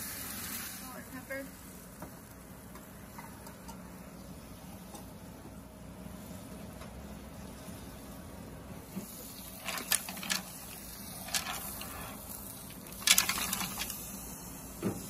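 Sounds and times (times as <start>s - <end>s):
wok machine humming: 0.0s - 15.0s
mussel shells clattering in pan: 9.5s - 14.0s.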